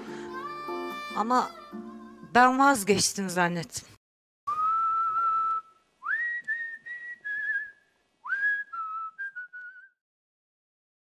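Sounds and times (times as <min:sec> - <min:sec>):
person whistling a tune: 0:04.5 - 0:10.0.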